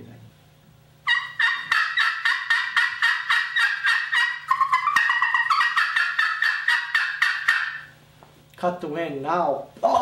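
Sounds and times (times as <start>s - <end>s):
friction turkey call yelps: 1.0s - 8.0s.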